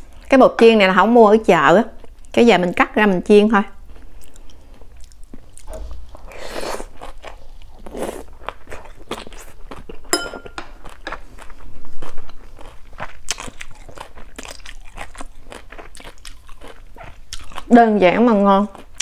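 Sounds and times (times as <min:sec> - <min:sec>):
crunchy chewing: 0:03.8 - 0:19.0
spoon clinking on plate: 0:10.1 - 0:10.7.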